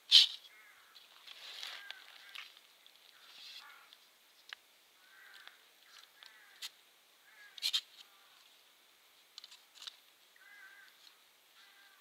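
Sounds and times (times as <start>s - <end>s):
harsh bird calls: 5.0s - 8.5s, 10.4s - 12.0s.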